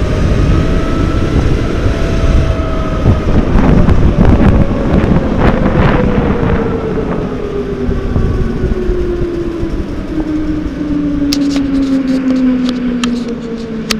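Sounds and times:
go-kart motor whine: 0.0 - 13.9
ride rumble: 0.0 - 13.9.

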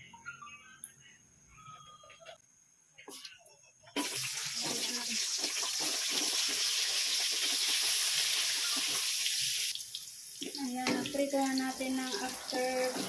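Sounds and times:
carrots sizzling in wok: 4.0 - 13.0.

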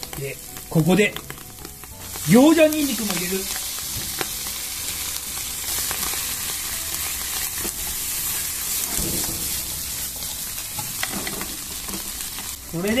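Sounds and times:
chopsticks clicking against pan: 0.0 - 4.5, 10.2 - 13.0
vegetables sizzling in butter: 0.0 - 13.0.

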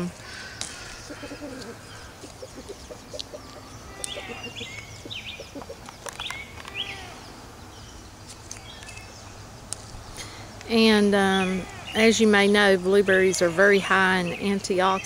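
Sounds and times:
chickens clucking: 0.3 - 6.9.

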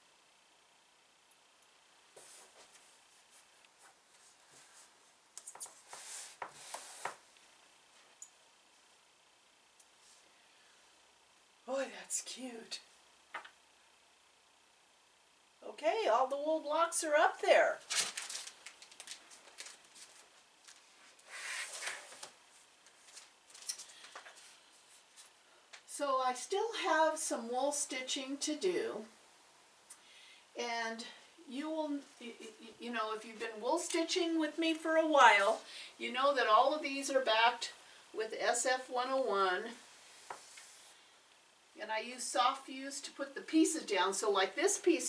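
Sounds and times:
fabric rustling and rubbing: 2.1 - 7.2, 17.8 - 23.7.

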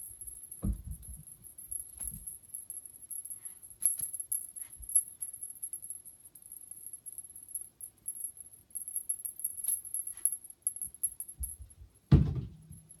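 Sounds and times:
cat toy jingling: 0.0 - 11.8
heavy thump: 0.6 - 1.3, 11.4 - 12.8.

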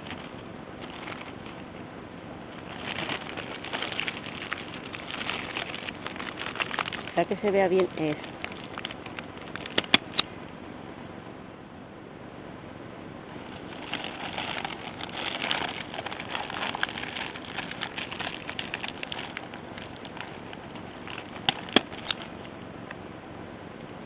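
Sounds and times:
paper bag crinkling: 0.0 - 1.7, 2.5 - 10.2, 13.3 - 22.5
sharp clicks: 8.4 - 10.3.

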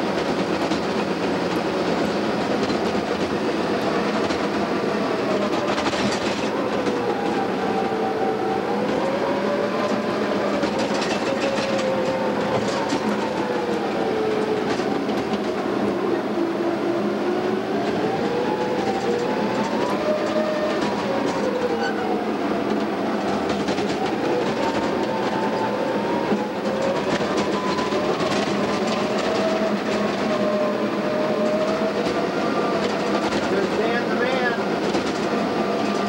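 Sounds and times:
steel tracks clattering: 0.0 - 16.2, 17.4 - 36.0.

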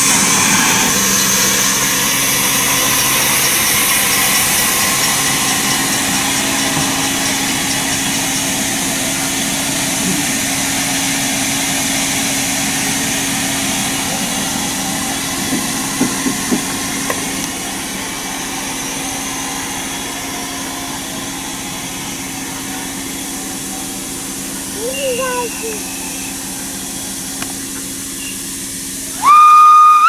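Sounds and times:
steam locomotive hissing: 0.0 - 30.0.

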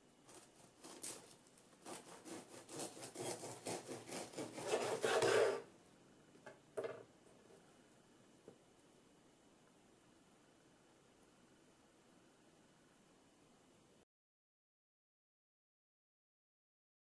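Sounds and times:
knife sawing through bread crust: 0.3 - 5.7.

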